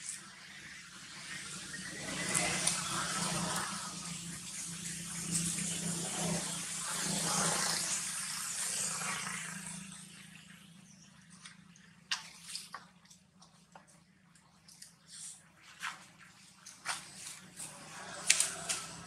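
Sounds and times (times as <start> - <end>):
faint crackles of leaves: 0.0 - 7.7, 11.2 - 19.0
dry leaves rustling: 17.0 - 19.0.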